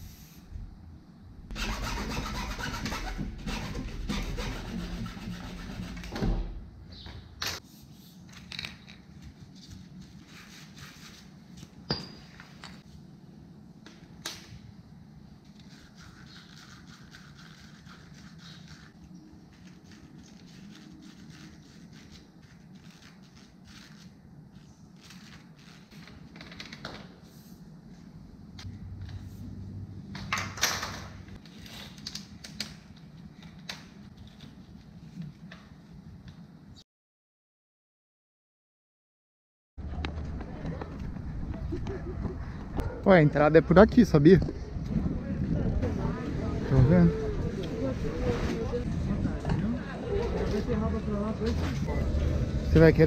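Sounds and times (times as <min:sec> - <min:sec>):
low hum: 0:44.5 - 0:53.0.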